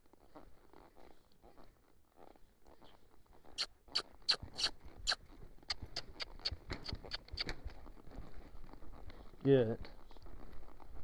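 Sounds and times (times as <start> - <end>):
hooves clicking and tapping: 0.0 - 11.0.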